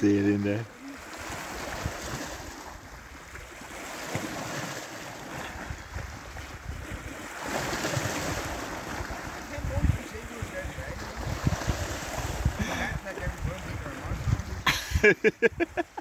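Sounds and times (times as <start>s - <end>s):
sea water lapping: 0.0s - 16.0s
wind buffeting microphone: 1.0s - 16.0s.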